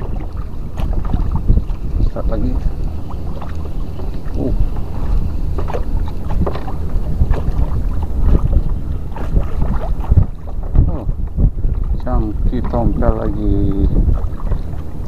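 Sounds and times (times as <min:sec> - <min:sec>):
small splashes and knocks: 0:00.0 - 0:11.1
water lapping at kayak: 0:00.0 - 0:15.0
wind buffeting microphone: 0:00.0 - 0:15.0.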